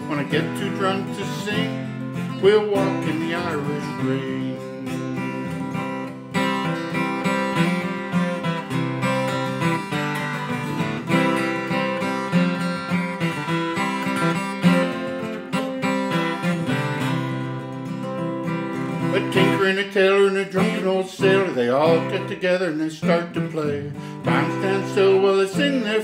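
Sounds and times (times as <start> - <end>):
acoustic guitar strumming: 0.0 - 26.0.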